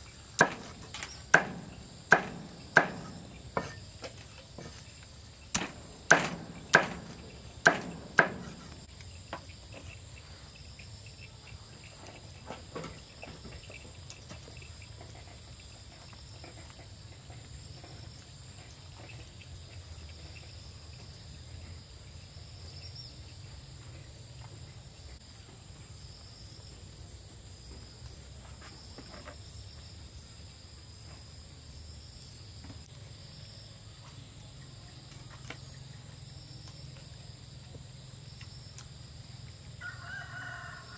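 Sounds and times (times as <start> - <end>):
insects droning: 0.0 - 40.9
chopping knocks: 0.4 - 4.2, 5.5 - 8.9.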